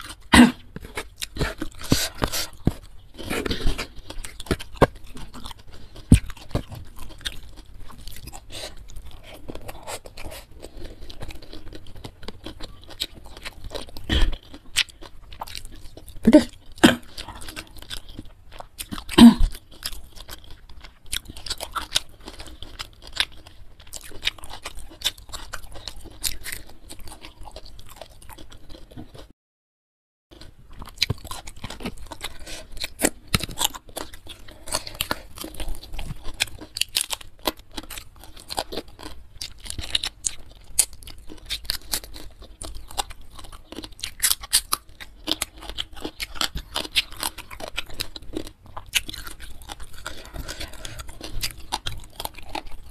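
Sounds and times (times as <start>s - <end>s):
chewing and crunching food: 0.0s - 29.3s, 30.3s - 52.9s.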